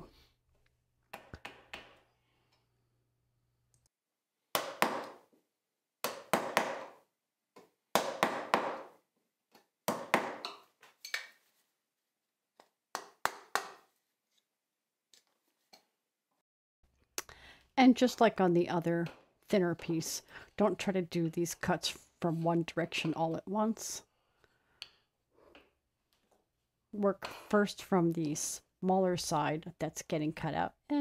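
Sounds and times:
mallet striking a chisel: 7.9 - 8.9.

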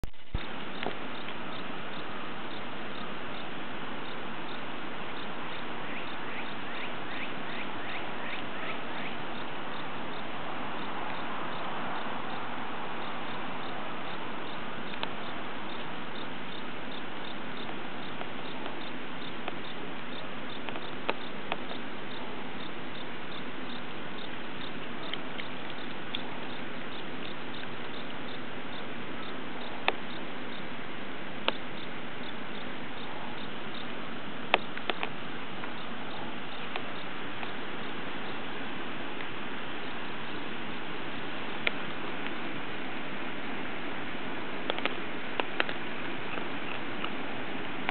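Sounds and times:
outdoor background hiss: 0.0 - 47.9
sharp clicks: 44.7 - 47.2.

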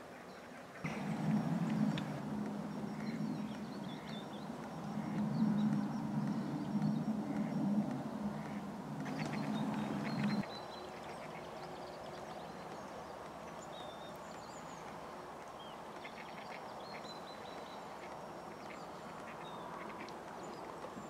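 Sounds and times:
steady background hiss: 0.0 - 21.0
small birds high calls: 0.8 - 15.0
waterfowl quacking: 8.3 - 10.4.

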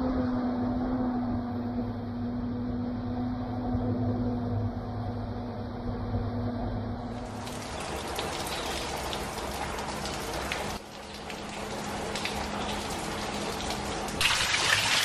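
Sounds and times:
heavy rain downpour: 7.1 - 15.0.

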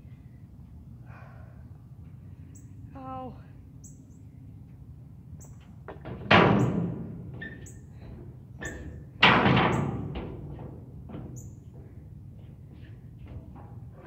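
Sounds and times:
birds chirping: 2.4 - 4.7.

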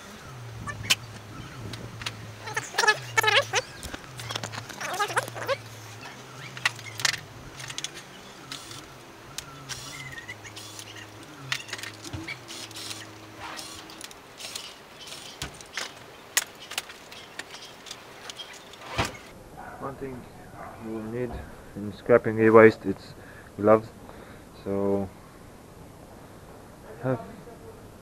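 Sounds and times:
low steady hum: 0.0 - 20.4.

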